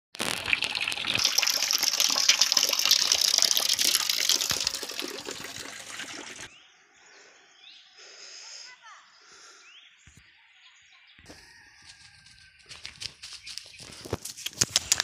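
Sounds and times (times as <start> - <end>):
water splashing from pipe spout: 0.2 - 6.5.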